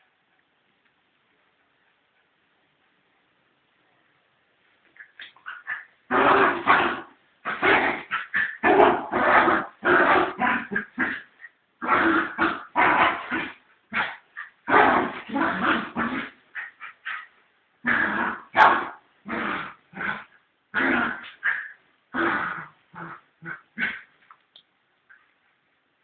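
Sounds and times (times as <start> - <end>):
dog growling and barking: 5.3 - 24.1.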